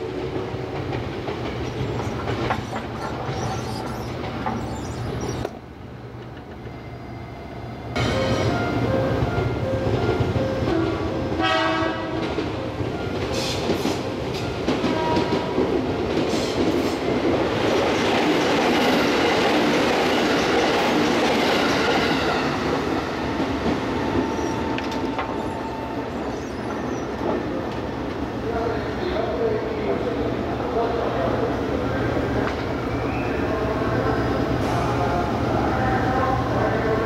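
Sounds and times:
train rushing past: 0:00.0 - 0:37.0
train wheels clacking: 0:00.2 - 0:05.5
train horn blast: 0:10.7 - 0:12.4, 0:14.8 - 0:15.5.

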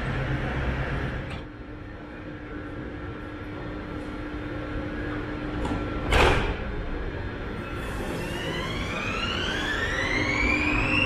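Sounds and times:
train doors shutting hiss and thud: 0:05.6 - 0:06.8
electric motor whine rising: 0:07.9 - 0:11.0.

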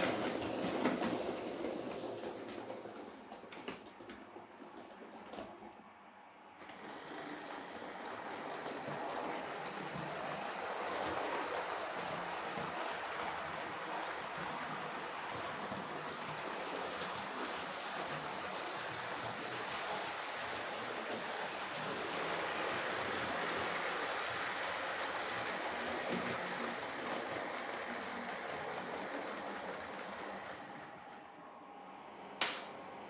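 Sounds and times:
model train wheels rattling on rails: 0:06.6 - 0:31.0.

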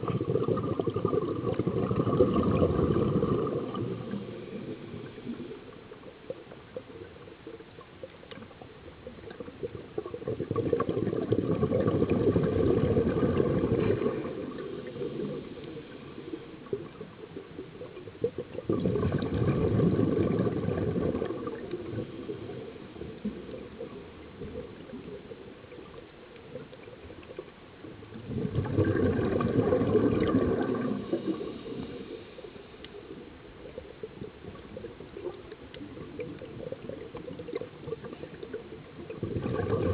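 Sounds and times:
underwater bubbles gurgling: 0:00.0 - 0:39.9.

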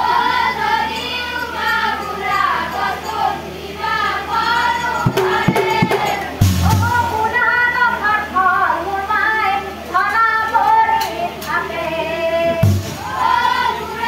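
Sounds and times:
chorus of women and girls singing: 0:00.0 - 0:09.4, 0:10.4 - 0:14.0
brass cymbals clashing: 0:04.9 - 0:07.7, 0:12.6 - 0:13.2
drum beats: 0:05.1 - 0:07.5, 0:12.6 - 0:13.3
woman singing lead: 0:05.1 - 0:14.0.

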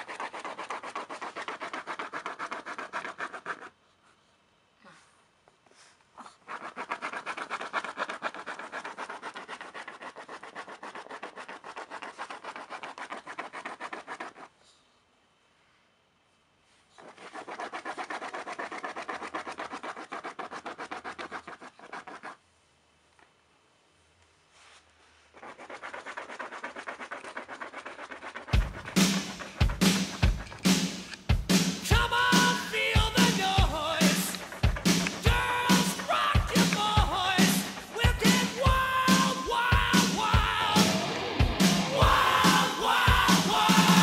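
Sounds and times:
dog scratching at fabric cushion: 0:00.0 - 0:03.8, 0:06.2 - 0:14.5, 0:17.0 - 0:22.4, 0:24.5 - 0:39.9.

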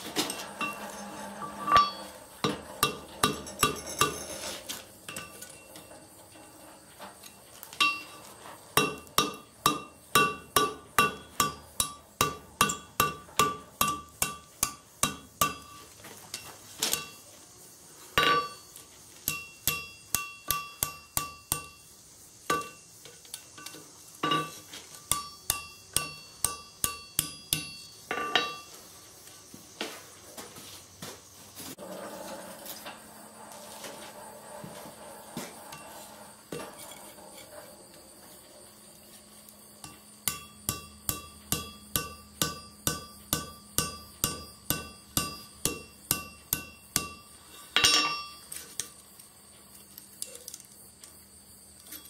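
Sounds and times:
hammer striking steel on anvil: 0:07.8 - 0:08.2, 0:08.8 - 0:15.8, 0:18.2 - 0:21.9, 0:22.5 - 0:22.9, 0:23.6 - 0:28.7, 0:39.8 - 0:48.4.

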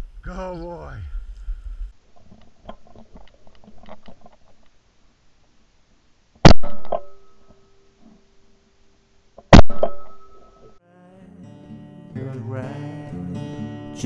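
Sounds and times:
shotgun shot: 0:06.4 - 0:07.2, 0:09.5 - 0:10.4.

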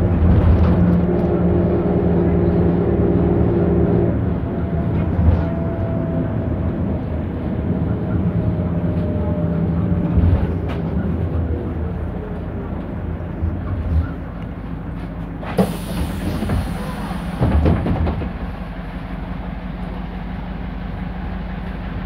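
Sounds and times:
bus engine drone: 0:00.0 - 0:22.0
hiss: 0:15.6 - 0:17.6.

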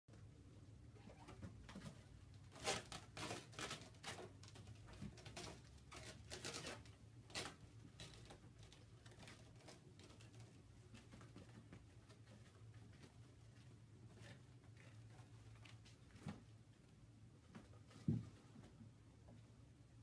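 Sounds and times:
kitten claws scratching shelves: 0:01.2 - 0:16.7.

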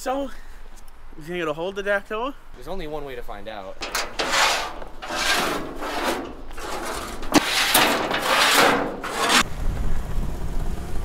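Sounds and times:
metal frame scraping on asphalt: 0:03.6 - 0:09.5.

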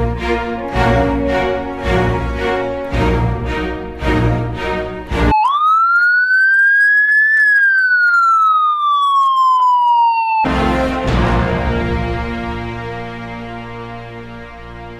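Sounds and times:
siren wail: 0:05.3 - 0:10.7.

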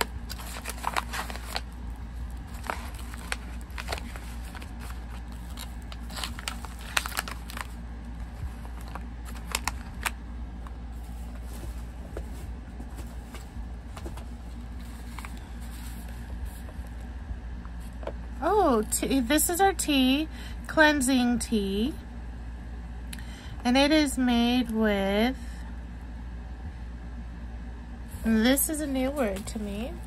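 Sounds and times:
packaging clicks and crinkles: 0:00.0 - 0:11.9
steady low hum: 0:00.0 - 0:30.0.

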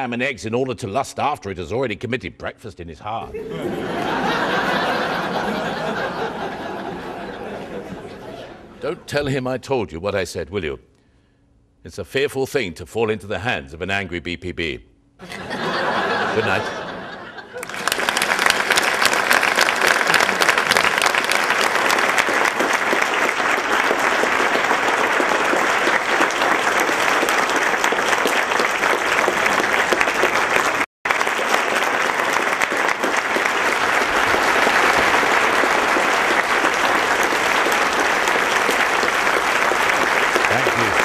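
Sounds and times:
audience clapping: 0:03.4 - 0:09.0, 0:15.5 - 0:41.0.

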